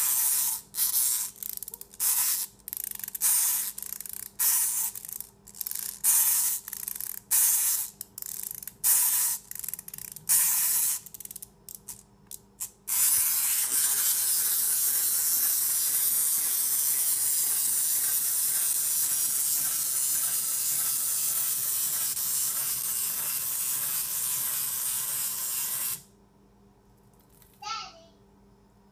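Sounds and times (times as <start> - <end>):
wind-up key ratcheting: 0.0 - 12.0
spring motor whirring: 12.6 - 26.1.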